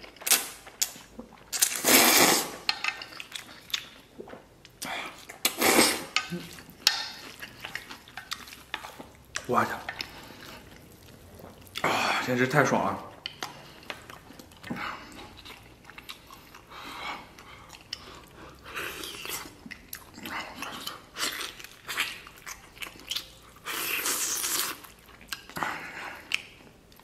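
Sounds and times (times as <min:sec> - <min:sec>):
chewing noodles: 0:00.0 - 0:12.0, 0:13.0 - 0:27.0.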